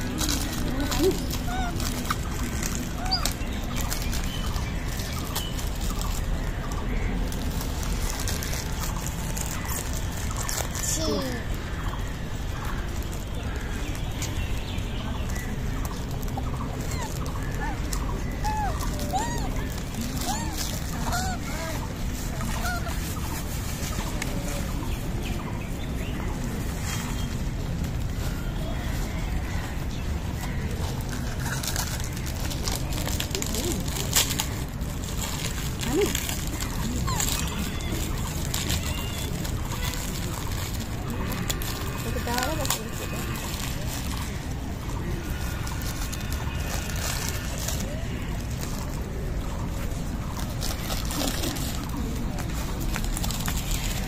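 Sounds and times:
high chirping animal calls: 0.0 - 14.6, 15.2 - 24.1, 35.2 - 49.0
outdoor background noise: 0.0 - 54.0
plastic bag rustling: 0.0 - 54.0
steady noisy background: 0.0 - 54.0.

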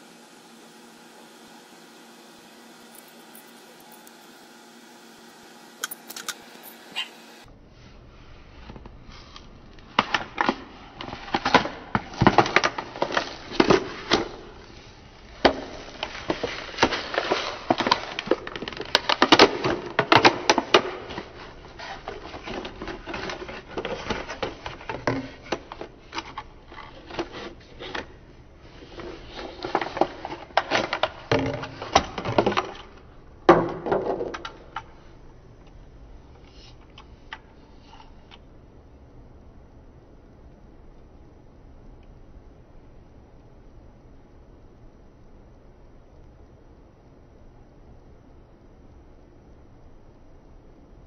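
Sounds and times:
plastic packaging crinkling and snapping: 9.7 - 14.7, 15.3 - 28.2, 28.8 - 33.1.

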